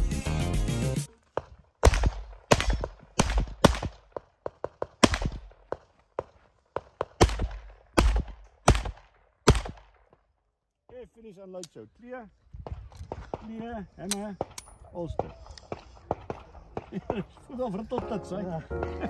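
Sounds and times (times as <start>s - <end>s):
background music: 0.0s - 1.1s, 18.0s - 19.0s
pistol shots: 1.8s - 10.2s.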